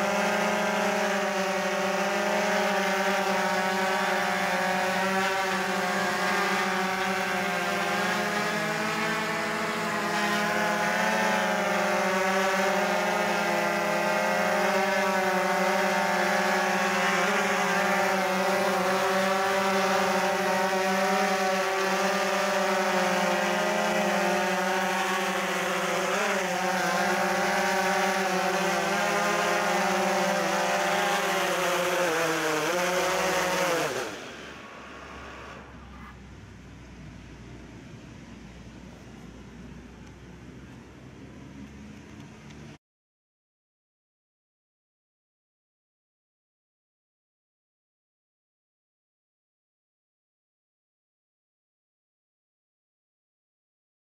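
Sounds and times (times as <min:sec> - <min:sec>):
drone propellers buzzing: 0:00.0 - 0:36.3.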